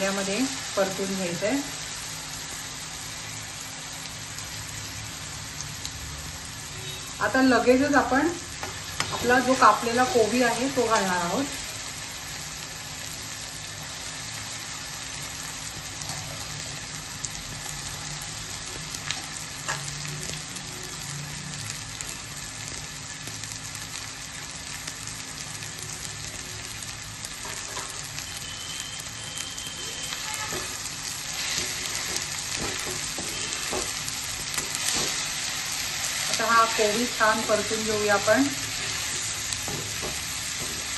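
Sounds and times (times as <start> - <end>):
oil sizzling in a wok: 0.0 - 40.9.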